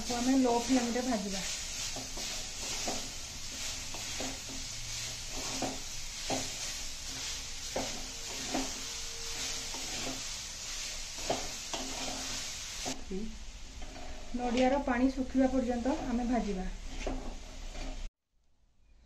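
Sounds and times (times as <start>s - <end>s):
spatula scraping a pan: 0.0s - 13.0s, 13.7s - 14.7s, 15.6s - 18.1s
coconut hissing as it cooks: 0.0s - 18.1s
spatula knocking on pan: 5.4s - 6.6s.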